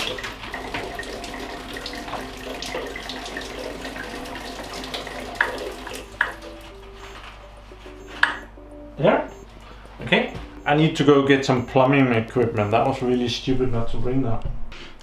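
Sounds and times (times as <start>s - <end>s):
water splashing from pipe: 0.0s - 6.5s.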